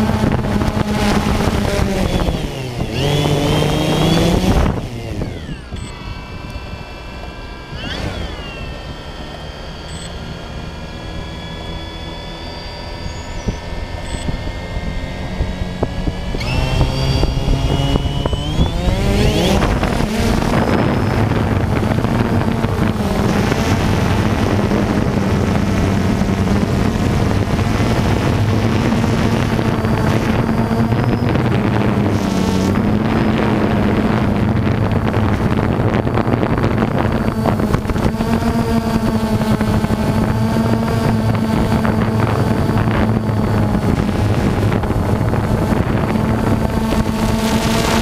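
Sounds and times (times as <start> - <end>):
drone propellers whining: 0.0 - 48.0.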